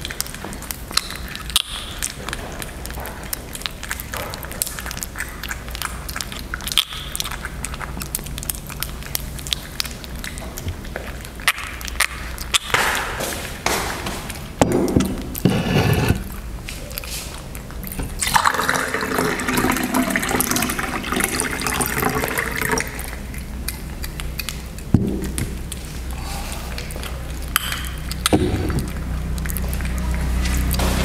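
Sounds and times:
water pouring into a glass: 18.2s - 23.0s.

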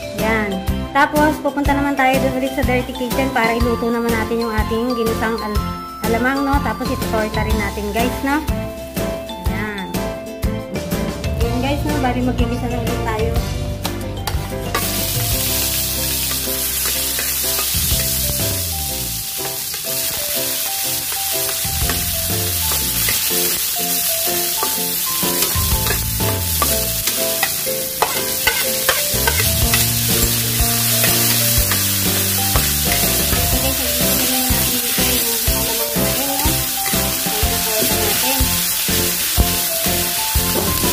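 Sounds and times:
background music: 0.0s - 40.9s
oil sizzling in a pan: 14.7s - 40.9s.

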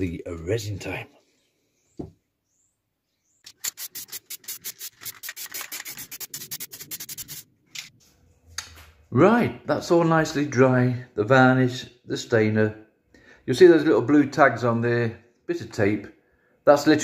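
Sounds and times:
knock: 2.0s - 2.2s
aerosol can rattling: 3.5s - 7.4s.

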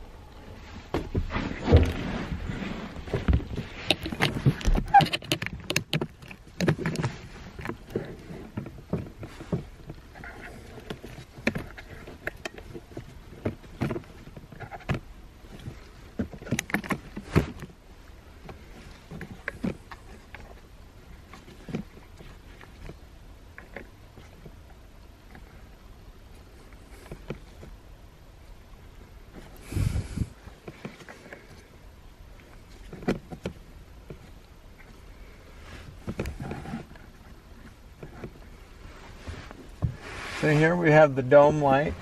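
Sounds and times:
handling clicks knocks and rustling: 3.0s - 17.8s, 18.4s - 25.6s, 26.3s - 27.8s, 32.4s - 38.6s.

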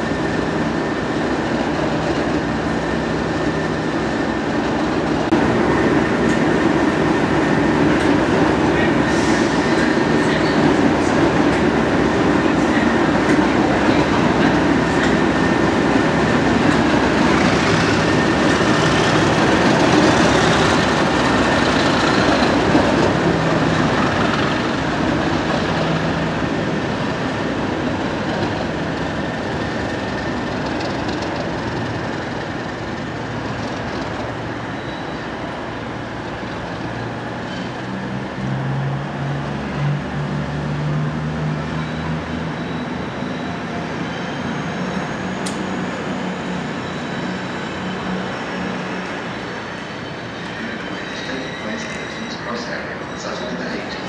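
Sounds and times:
diesel locomotive engine running: 0.0s - 54.0s.

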